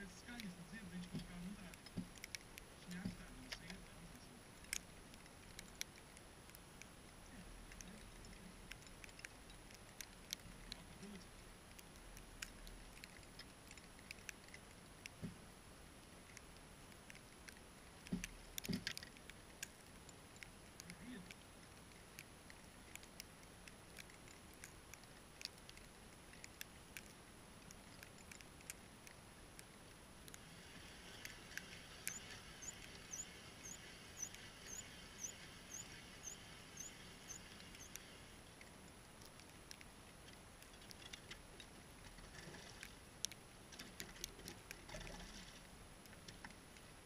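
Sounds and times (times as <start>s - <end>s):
light hiss: 0.0s - 47.0s
faint clicks: 0.1s - 15.4s, 16.0s - 46.9s
high chirp: 32.0s - 38.0s.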